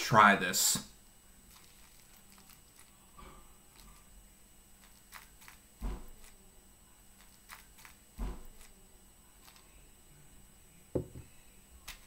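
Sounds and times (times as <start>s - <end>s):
milk pouring over bird seed: 1.5s - 3.0s
dull thump: 11.0s - 11.2s.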